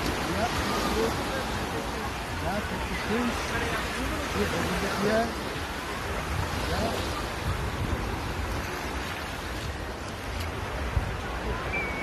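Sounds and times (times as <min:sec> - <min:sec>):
sea surf washing: 0:00.0 - 0:12.0
wind buffeting microphone: 0:05.4 - 0:12.0.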